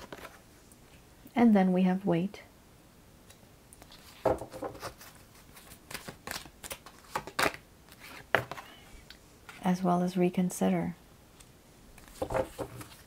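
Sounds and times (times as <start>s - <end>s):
cards shuffling and sliding: 0.0s - 0.4s, 3.8s - 8.7s, 11.4s - 13.0s.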